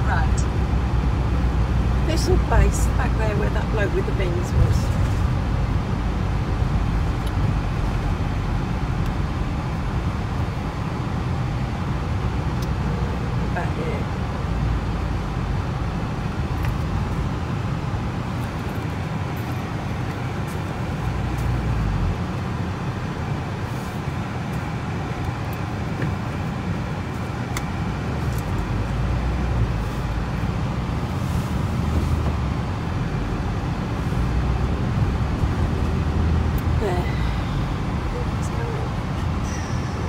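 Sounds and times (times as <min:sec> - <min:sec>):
van engine and road rumble: 0:00.0 - 0:40.0.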